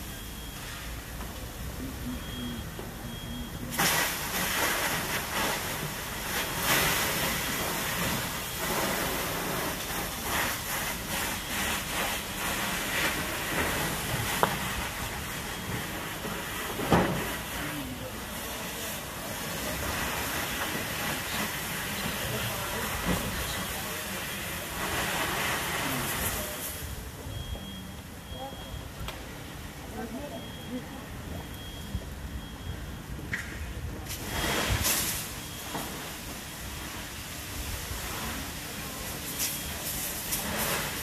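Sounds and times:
hissing water spray and steam: 0.0s - 29.7s, 31.1s - 41.0s
sharp pops: 3.7s - 9.1s.

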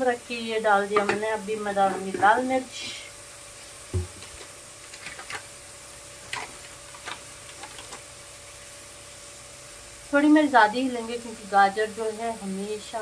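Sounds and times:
vegetables frying in oil: 0.0s - 13.0s
dull knock: 3.9s - 4.2s.

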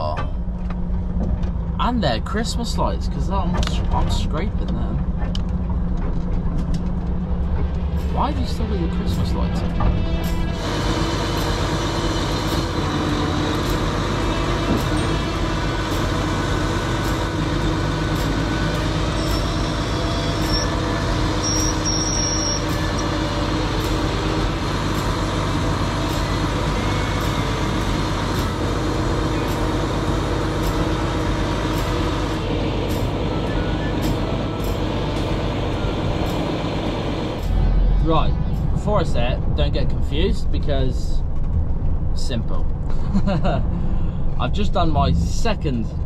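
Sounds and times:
diesel engine running: 0.0s - 46.0s
hydraulic crane whine: 5.0s - 39.6s.

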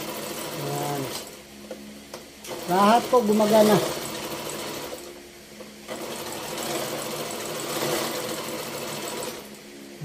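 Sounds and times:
sewing machine running: 0.0s - 1.4s, 2.4s - 5.1s, 5.9s - 9.6s.

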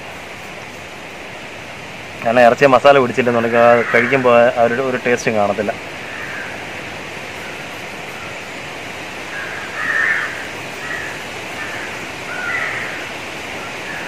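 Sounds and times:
outdoor hiss: 0.0s - 14.0s
short bird calls: 5.9s - 8.7s, 9.3s - 14.0s.

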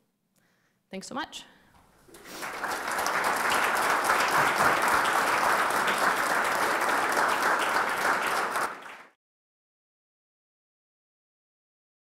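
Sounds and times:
audience applauding: 2.1s - 9.2s.

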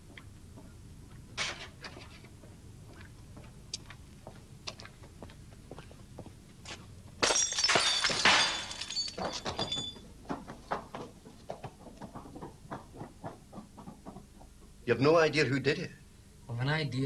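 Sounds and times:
glass bottle smashing: 7.2s - 10.0s
glass shards tinkling: 7.2s - 10.0s.

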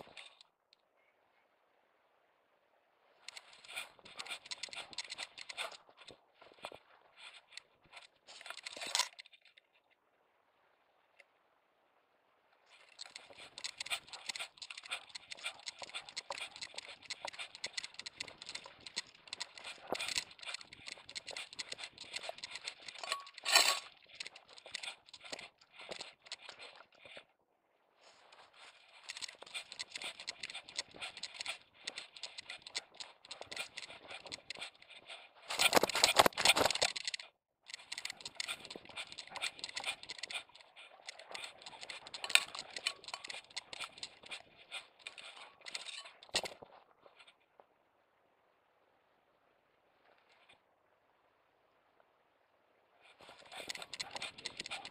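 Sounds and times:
camera vest rattling and jangling: 0.0s - 0.5s, 3.2s - 9.8s, 12.7s - 27.2s, 28.1s - 47.4s, 53.0s - 54.9s
grass brushing: 37.8s - 46.6s.

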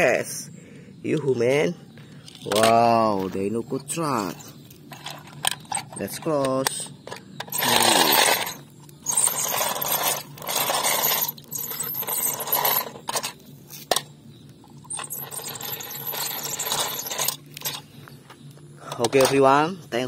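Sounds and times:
toy truck scraping on concrete: 7.4s - 14.1s, 14.8s - 17.9s.

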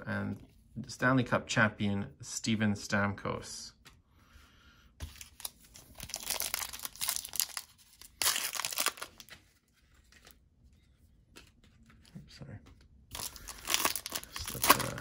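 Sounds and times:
foil wrapper crinkling: 5.2s - 9.3s, 13.1s - 15.0s
foil wrapper ripping: 5.8s - 9.3s, 13.1s - 15.0s.

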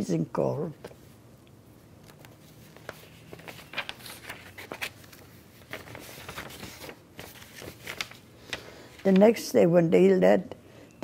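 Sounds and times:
paper rustling: 2.0s - 9.5s.

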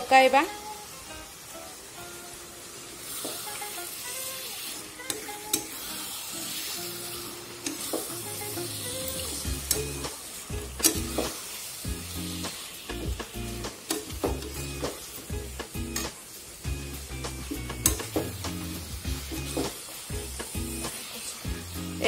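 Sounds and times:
chicken sizzling in a pan: 0.0s - 22.0s.

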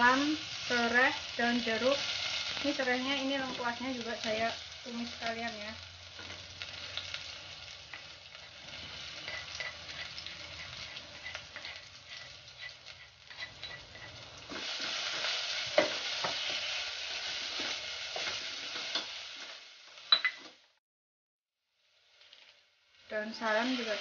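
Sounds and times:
spice paste sizzling in oil: 0.0s - 20.6s, 21.6s - 24.0s
spatula scraping a metal pot: 8.8s - 14.8s.

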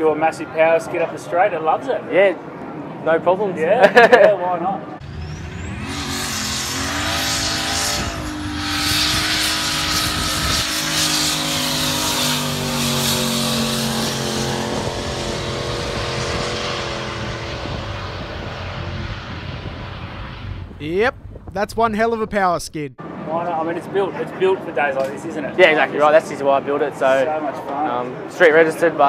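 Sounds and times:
car engine revving high: 5.0s - 20.8s.

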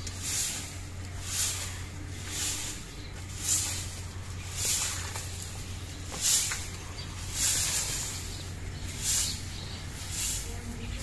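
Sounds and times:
straw broom sweeping concrete: 0.0s - 11.0s.

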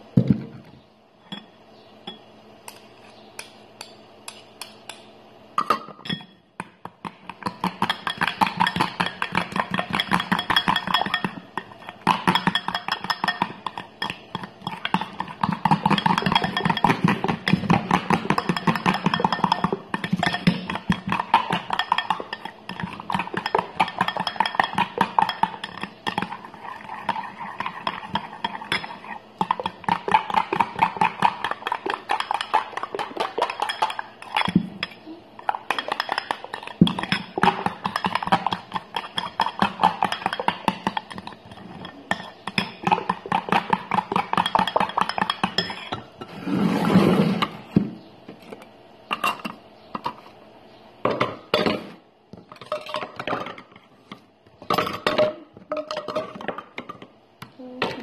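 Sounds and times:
fork scraping glass bowl: 18.3s - 34.5s.

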